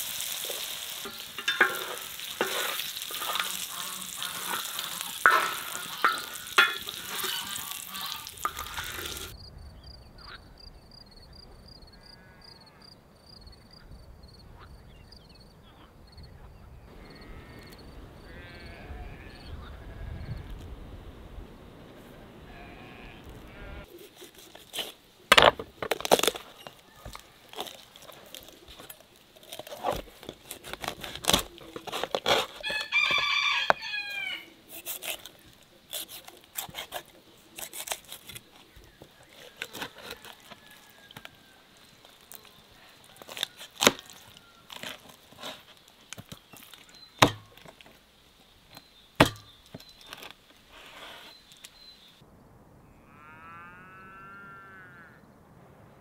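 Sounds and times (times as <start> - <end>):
knife cutting raw chicken: 29.4 - 41.3, 42.4 - 45.7
rooster crowing: 32.6 - 34.5, 39.9 - 41.7, 42.8 - 44.8.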